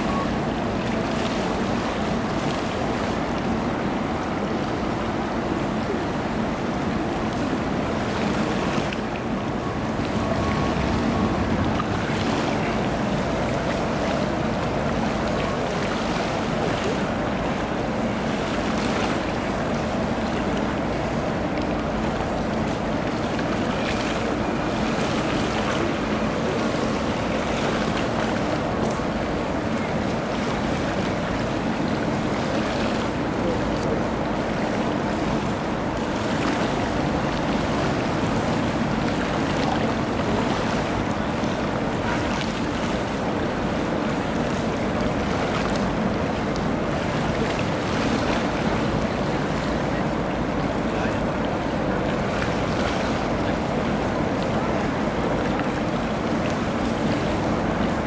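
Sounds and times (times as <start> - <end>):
ship engines humming: 0.0 - 58.0
water rushing: 0.0 - 58.0
wind on microphone: 8.2 - 15.0.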